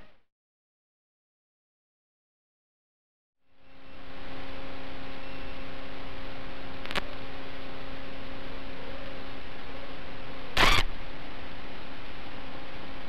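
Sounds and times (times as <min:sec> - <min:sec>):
electrical hum: 0:03.7 - 0:13.0.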